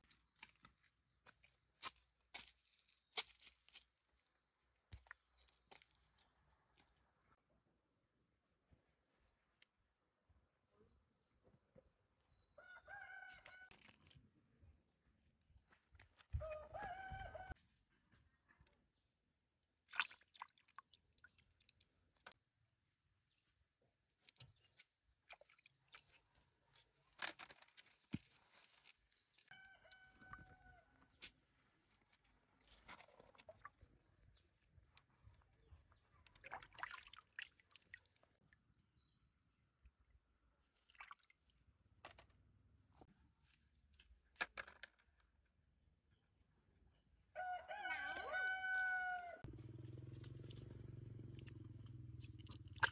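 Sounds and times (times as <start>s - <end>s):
rooster crowing: 12.6s - 13.7s, 16.4s - 17.6s, 29.5s - 31.0s, 47.4s - 49.5s
hands splashing in pond water: 19.8s - 22.3s, 24.6s - 26.6s, 36.2s - 38.4s, 40.8s - 41.5s, 52.2s - 52.9s.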